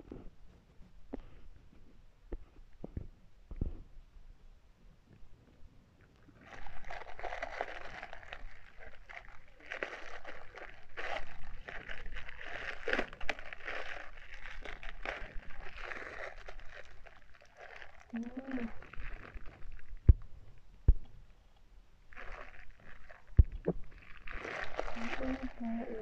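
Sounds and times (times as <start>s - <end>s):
bubble wrap and plastic bags crinkling: 6.3s - 20.4s, 22.1s - 26.0s.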